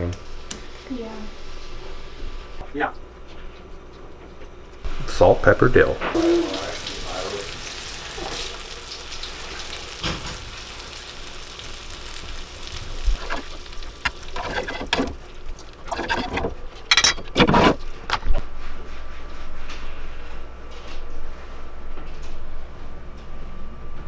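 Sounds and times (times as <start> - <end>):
fish sizzling in a frying pan: 6.1 - 15.9.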